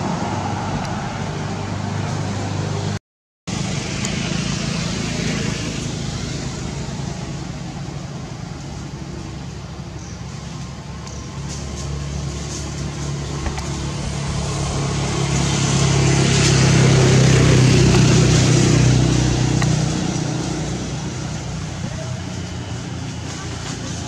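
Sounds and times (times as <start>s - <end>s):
vehicle engine passing by: 0.0s - 24.0s.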